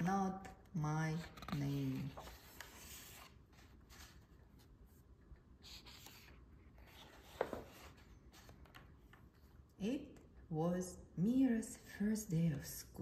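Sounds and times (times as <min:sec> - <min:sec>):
book pages turning: 0:00.0 - 0:09.6.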